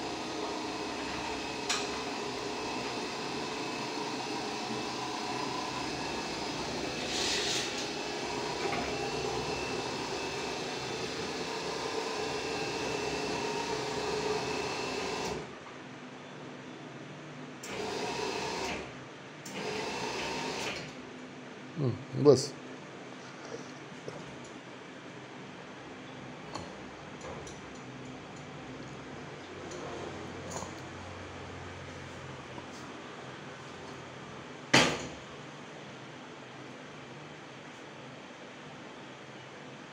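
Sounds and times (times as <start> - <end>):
stairlift motor humming and whining: 0.0 - 15.5.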